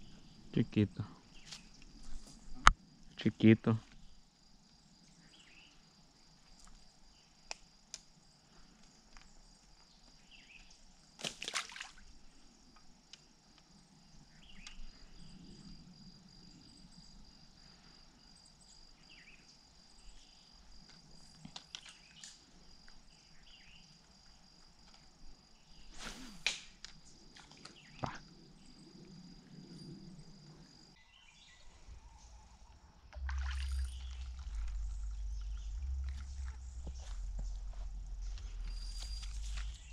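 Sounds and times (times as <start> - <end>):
high-pitched insect trill: 13.7 - 39.9
brief swishing noises: 26.0 - 26.5.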